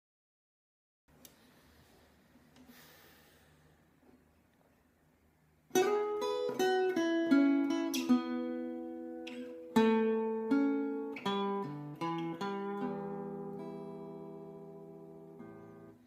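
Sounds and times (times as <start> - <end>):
acoustic guitar picking: 5.7 - 16.0.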